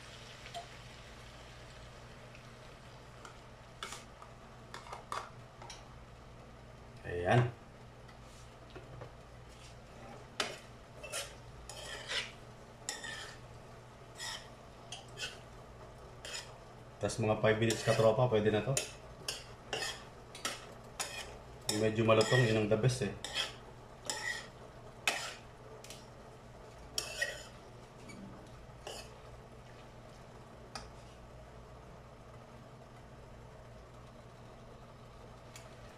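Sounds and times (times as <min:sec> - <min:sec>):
steady low hum: 0:00.0 - 0:35.9
spatula scraping frying pan: 0:09.9 - 0:13.5, 0:14.1 - 0:15.4, 0:16.2 - 0:16.6, 0:17.6 - 0:18.2, 0:18.8 - 0:25.5, 0:27.0 - 0:28.1, 0:28.8 - 0:29.2.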